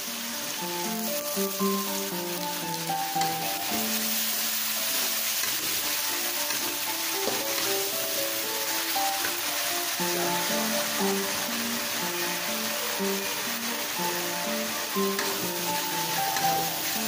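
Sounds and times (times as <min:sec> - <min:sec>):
paste sizzling in a wok: 0:00.0 - 0:17.0
metal spatula stirring: 0:01.5 - 0:11.5, 0:13.6 - 0:17.0.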